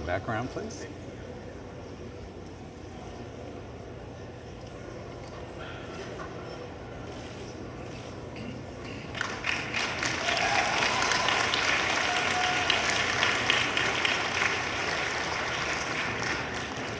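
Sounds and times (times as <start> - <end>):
audience applause: 9.1 - 16.9.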